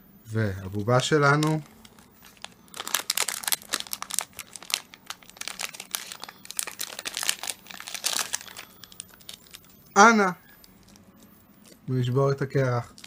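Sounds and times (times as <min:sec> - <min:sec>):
plastic wrapper crinkling and tearing: 0:00.7 - 0:11.0.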